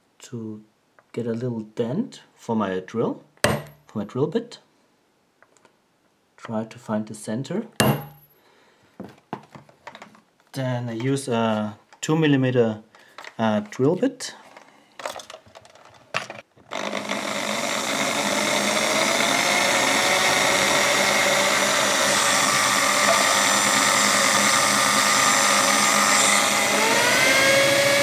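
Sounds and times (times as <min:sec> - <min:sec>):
electric drill drilling metal: 0:16.7 - 0:28.0.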